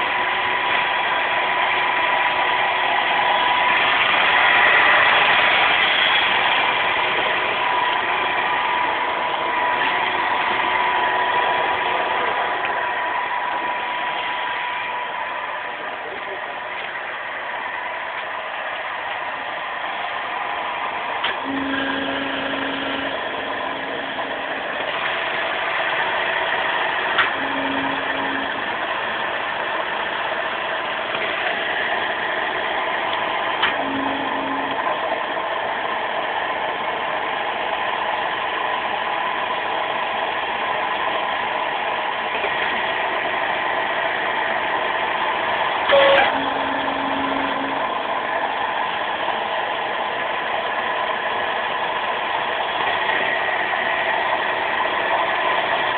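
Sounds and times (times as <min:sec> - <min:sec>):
hydraulic power unit running: 0:00.0 - 0:55.9
short low hum: 0:03.0 - 0:35.3, 0:45.9 - 0:48.6.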